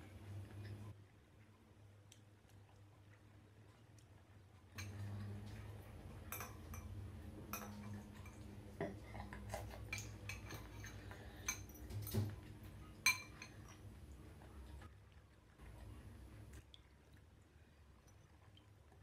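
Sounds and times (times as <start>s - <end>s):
spoon clinking on glass bowl: 6.3s - 8.5s, 9.9s - 12.3s, 13.0s - 13.8s.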